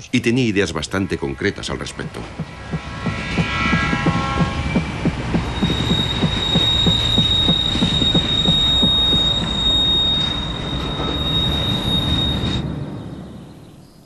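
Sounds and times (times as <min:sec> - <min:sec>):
train clickety-clack: 0:01.9 - 0:12.6
train wheels squealing: 0:02.8 - 0:14.0.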